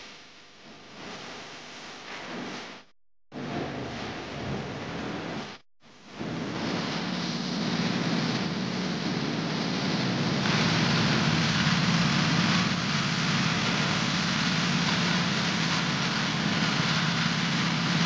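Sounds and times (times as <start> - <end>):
blades hissing on wet concrete: 6.2 - 18.0
power trowel engine humming: 7.5 - 18.0.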